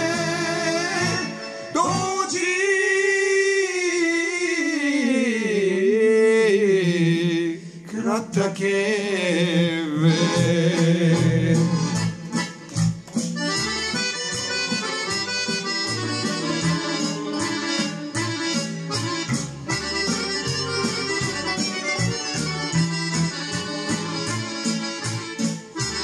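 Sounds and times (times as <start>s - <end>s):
older man singing slowly: 0.0s - 11.9s.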